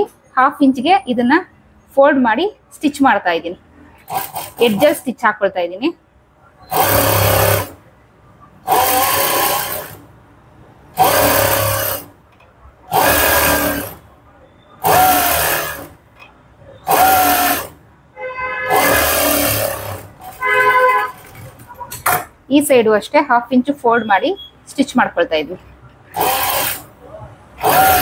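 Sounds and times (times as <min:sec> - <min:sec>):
sewing machine stitching: 0:04.0 - 0:05.1, 0:06.7 - 0:07.8, 0:08.6 - 0:10.1, 0:10.9 - 0:12.1, 0:12.9 - 0:14.0, 0:14.8 - 0:16.0, 0:16.8 - 0:17.8, 0:18.7 - 0:22.2, 0:26.1 - 0:27.0, 0:27.6 - 0:28.0.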